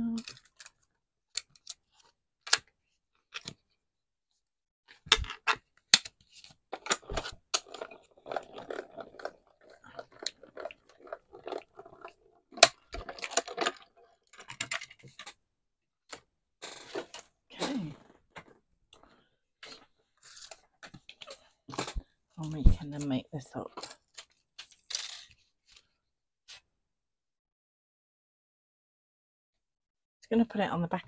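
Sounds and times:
acrylic plates clicking and knocking: 5.1s - 15.4s.

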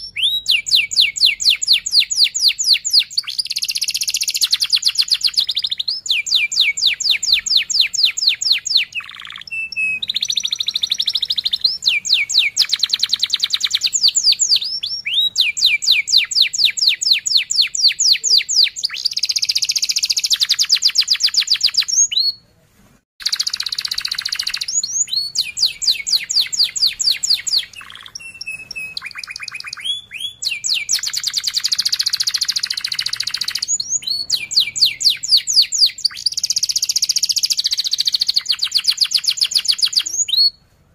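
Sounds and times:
canary singing trills: 0.0s - 22.4s, 23.2s - 40.6s.

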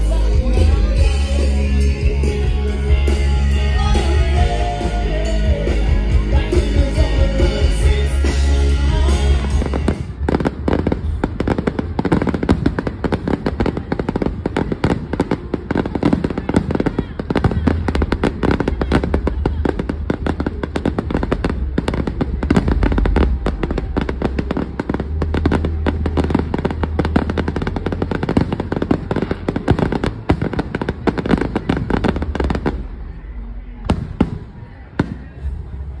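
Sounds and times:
live rock band playing: 0.0s - 10.3s
fireworks bangs and crackles: 9.2s - 36.0s.

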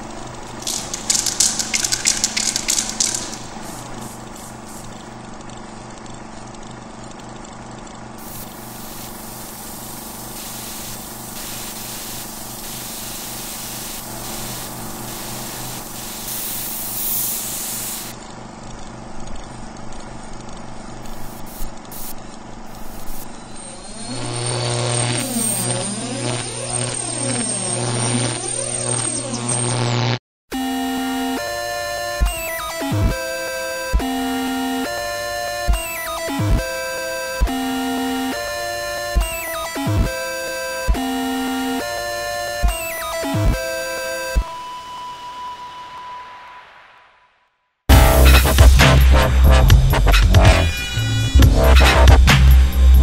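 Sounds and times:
sweeping electronic music: 0.0s - 5.1s, 30.6s - 47.0s, 47.9s - 53.0s
spray paint can hissing: 0.4s - 5.2s, 8.2s - 18.2s, 21.0s - 23.4s.

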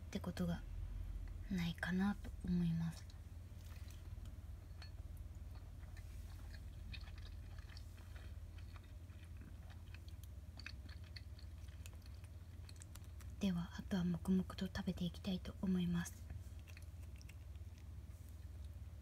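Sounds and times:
steady low hum: 0.0s - 19.0s
person chewing food: 3.5s - 13.4s, 16.2s - 19.0s.

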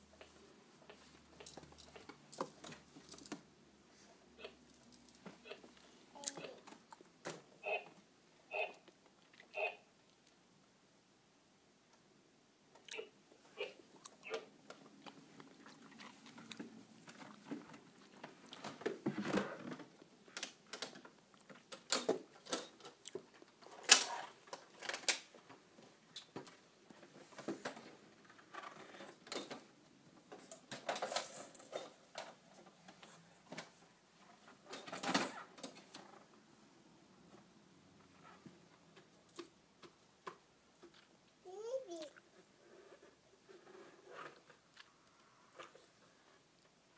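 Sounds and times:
plastic toys clacking: 1.4s - 3.4s.

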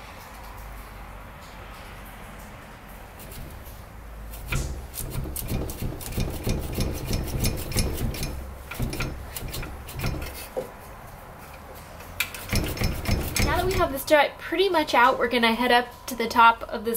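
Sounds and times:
metal knocking and scraping: 3.2s - 14.1s.

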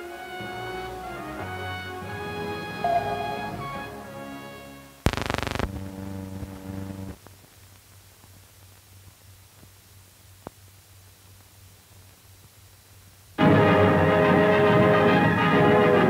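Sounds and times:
old film soundtrack hum: 0.0s - 16.0s
music sting closing chord: 2.7s - 4.0s
faint clicks and pops: 5.0s - 12.6s.

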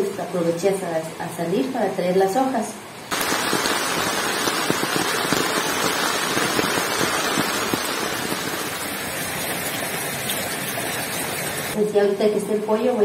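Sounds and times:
heavy rain falling: 3.1s - 11.8s.

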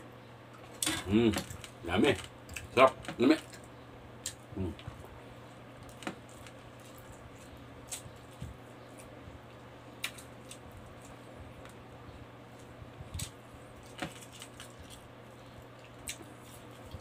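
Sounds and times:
chewing food: 12.5s - 17.0s.

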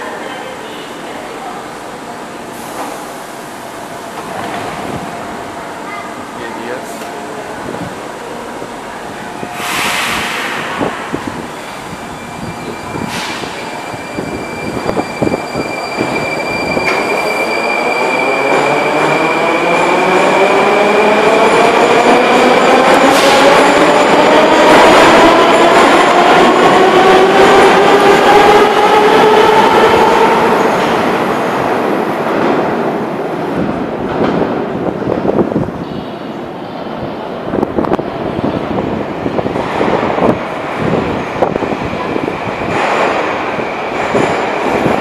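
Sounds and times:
train air hiss: 9.5s - 11.0s.

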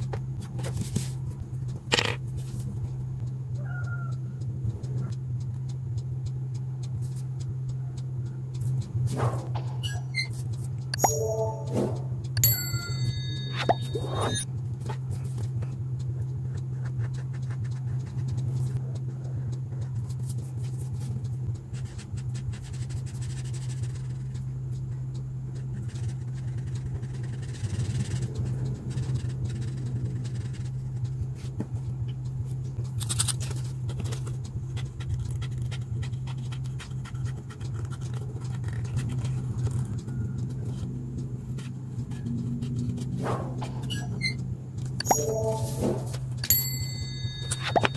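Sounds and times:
steady low hum: 0.0s - 47.9s
marker pen scratching on paper: 16.4s - 24.4s, 25.6s - 31.6s, 33.4s - 40.9s, 41.5s - 44.0s.

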